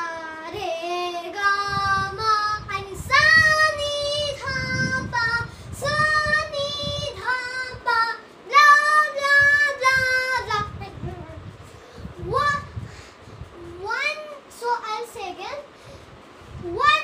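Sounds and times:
child singing scale syllables: 0.0s - 11.4s, 13.6s - 15.7s, 16.6s - 17.0s.

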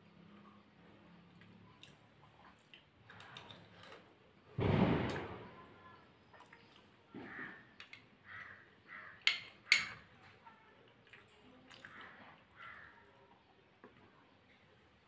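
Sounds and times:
metal spoon clicking on glass: 9.3s - 10.0s.

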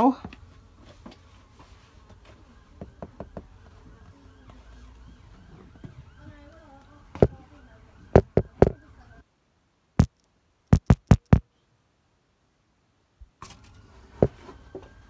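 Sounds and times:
faint background murmur: 0.1s - 9.4s
sharp taps: 8.2s - 8.8s, 10.0s - 11.4s.

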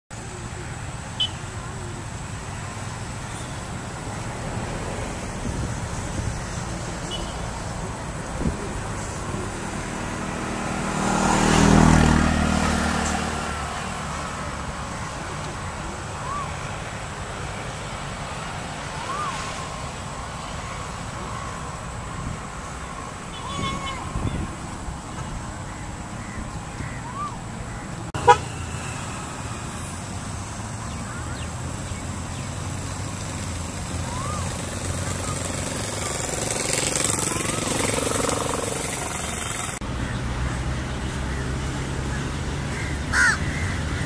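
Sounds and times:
road traffic rumble: 0.1s - 44.0s
vehicle passing by: 0.2s - 44.0s
car horn toot: 1.2s - 1.4s, 7.1s - 7.4s, 23.3s - 24.5s, 28.2s - 28.6s.

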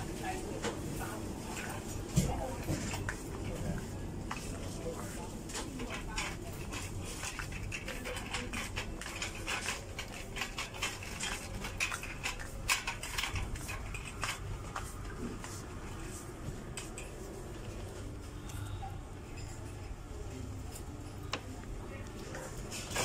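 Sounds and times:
shopping trolley rattling: 4.8s - 14.9s.

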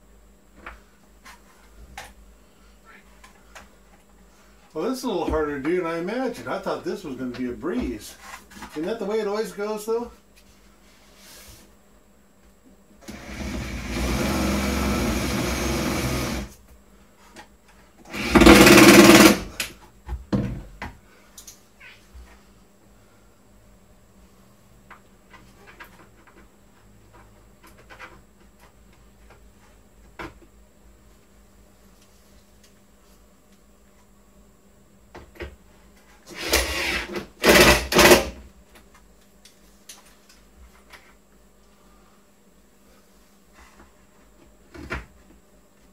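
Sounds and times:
cordless drill drilling wood: 13.0s - 16.5s, 18.1s - 19.4s, 36.4s - 38.3s.

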